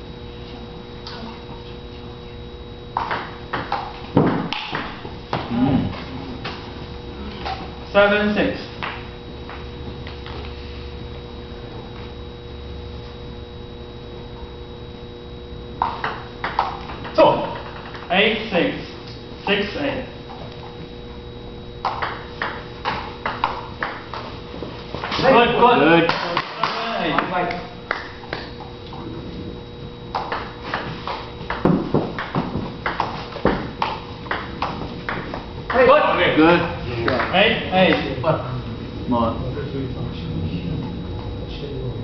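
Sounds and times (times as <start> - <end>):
electrical hum: 0.0 - 42.0
thin high whine: 0.0 - 42.0
ping pong ball clicking: 3.0 - 3.9, 21.8 - 24.0.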